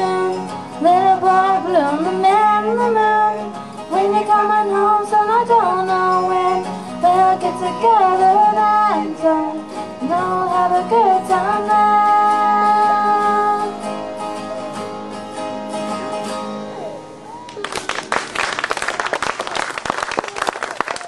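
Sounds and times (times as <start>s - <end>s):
women singing: 0.0s - 14.1s
acoustic guitars ringing: 0.0s - 17.4s
audience applause: 17.4s - 21.0s.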